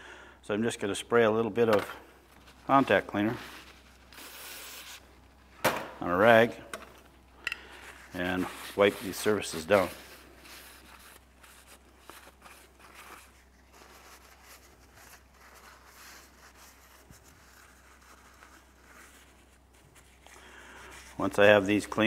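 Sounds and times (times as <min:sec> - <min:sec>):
cloth rag rubbing metal: 0:07.8 - 0:22.0.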